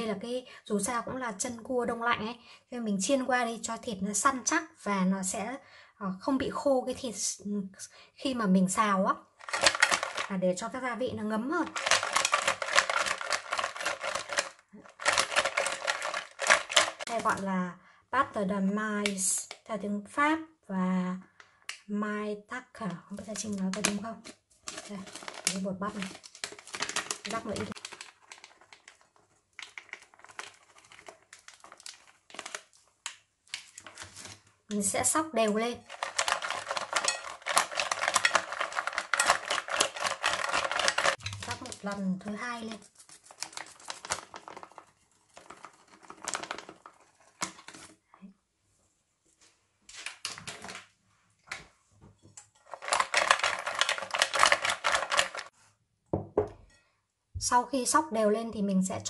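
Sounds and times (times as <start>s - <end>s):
crab shells clattering in glass bowl: 9.4s - 10.3s, 11.6s - 17.2s, 35.8s - 41.8s, 52.6s - 55.5s
plastic bag crinkling: 9.4s - 10.4s, 11.6s - 17.4s, 24.6s - 34.5s, 35.7s - 48.0s, 52.6s - 55.5s.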